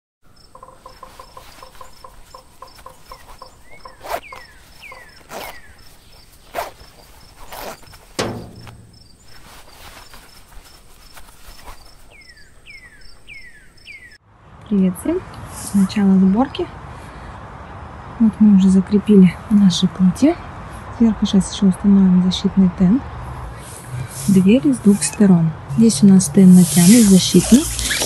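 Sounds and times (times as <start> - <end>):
birds chirping: 0.4 - 14.2
sharp hits: 8.2 - 9.6.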